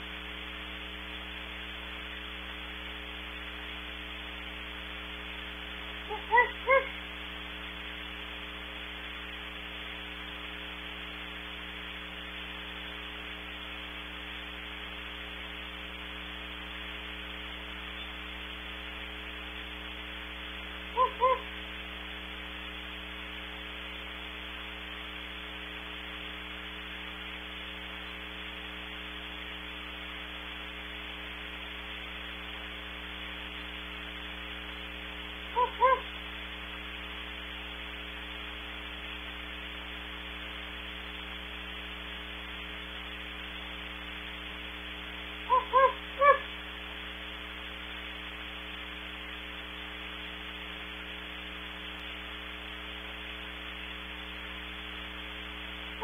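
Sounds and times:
electrical hum: 0:00.0 - 0:56.0
steady hiss: 0:00.0 - 0:56.0
distant owls hooting: 0:06.0 - 0:07.0, 0:20.9 - 0:21.5, 0:35.5 - 0:36.1, 0:45.5 - 0:46.5.

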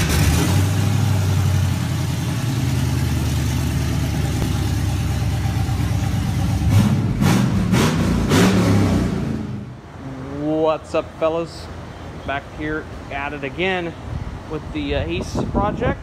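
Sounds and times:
engine idling and revving: 0:00.0 - 0:10.2.

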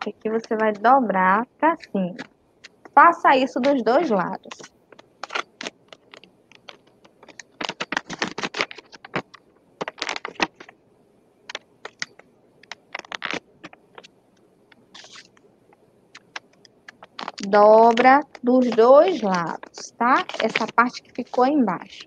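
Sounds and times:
paper being folded: 0:03.6 - 0:10.7, 0:11.5 - 0:14.1, 0:14.9 - 0:15.4, 0:16.2 - 0:22.0.

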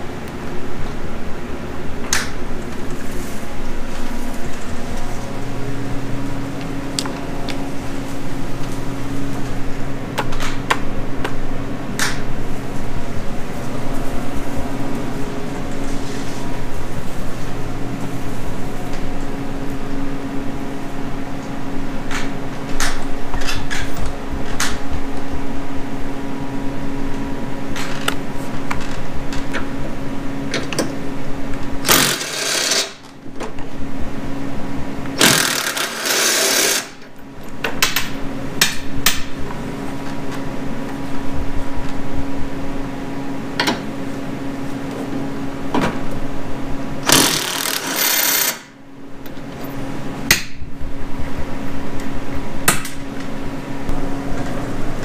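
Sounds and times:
steady low hum: 0:00.0 - 0:55.0
cordless drill rattling: 0:31.9 - 0:33.0, 0:35.2 - 0:37.0, 0:47.1 - 0:48.6.

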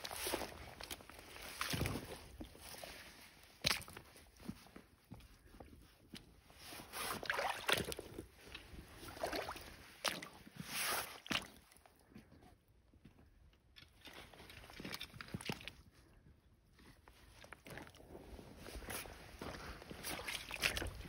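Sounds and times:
boot splashing through water: 0:00.0 - 0:04.6, 0:06.8 - 0:11.8, 0:14.0 - 0:15.7, 0:18.8 - 0:21.0.

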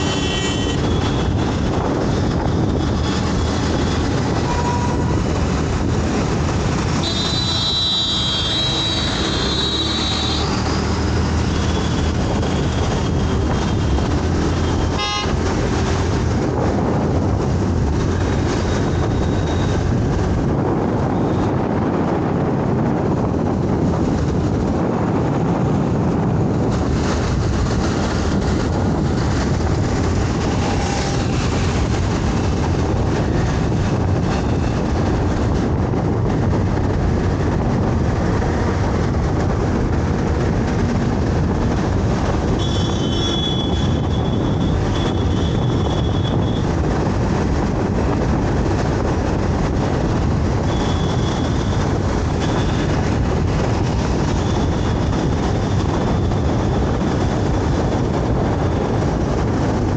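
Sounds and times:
vehicle horn honking: 0:00.0 - 0:01.2, 0:04.4 - 0:05.1, 0:07.0 - 0:10.6, 0:14.8 - 0:15.4, 0:42.6 - 0:46.6, 0:50.7 - 0:51.8
road and wind noise: 0:00.0 - 0:59.9.

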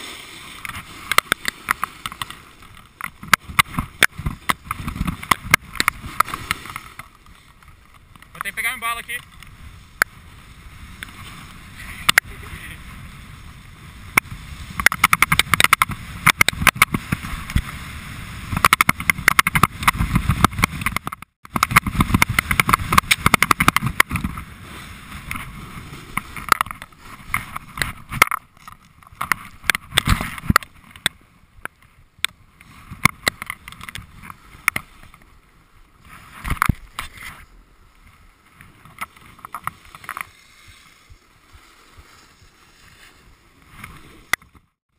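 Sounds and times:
snowboard scraping on snow: 0:00.0 - 0:02.7, 0:09.5 - 0:14.8, 0:16.9 - 0:18.6, 0:19.9 - 0:20.8, 0:21.8 - 0:28.2, 0:35.9 - 0:44.3
wind noise on microphone: 0:00.6 - 0:08.6, 0:09.3 - 0:35.2, 0:36.0 - 0:44.8.

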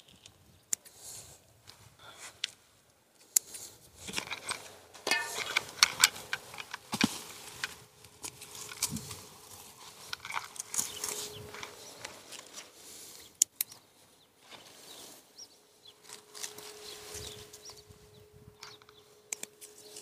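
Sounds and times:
cloth rustling and crackling: 0:14.0 - 0:18.1.

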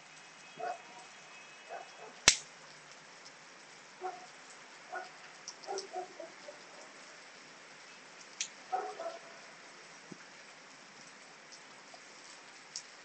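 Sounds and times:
rain hissing: 0:00.0 - 0:13.0
dog barking: 0:00.6 - 0:01.1, 0:01.7 - 0:02.2, 0:04.0 - 0:04.3, 0:04.9 - 0:06.8, 0:08.7 - 0:09.5.

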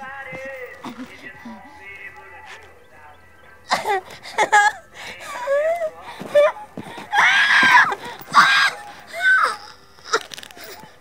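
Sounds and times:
woman screaming and crying out: 0:04.6 - 0:10.3.

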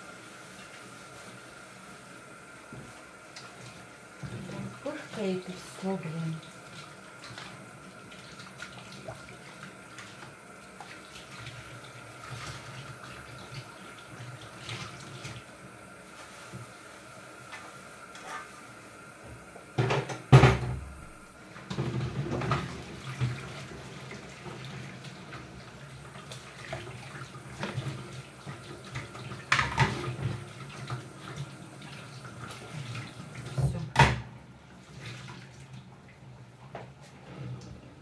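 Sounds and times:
pan clunking against sink: 0:19.8 - 0:20.9, 0:29.5 - 0:30.1.

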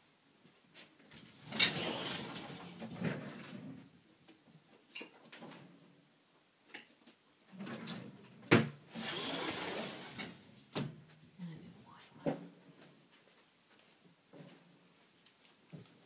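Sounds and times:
rustling and rattling: 0:00.7 - 0:04.0.

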